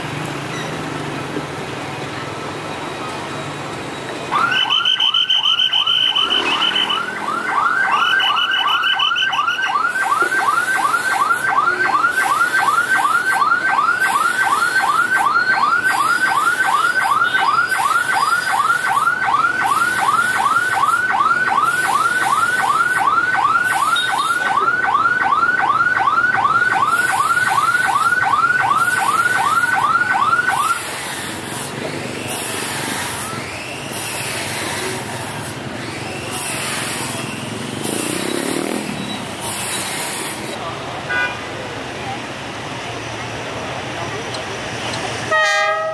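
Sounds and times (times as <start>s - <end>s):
motorbikes: 0.0s - 45.9s
street traffic: 0.0s - 45.9s
level crossing alarm whooping: 4.3s - 31.0s.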